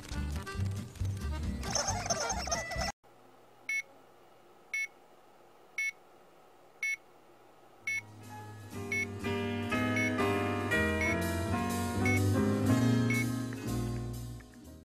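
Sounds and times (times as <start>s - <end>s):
music: 0.0s - 2.9s, 8.0s - 14.8s.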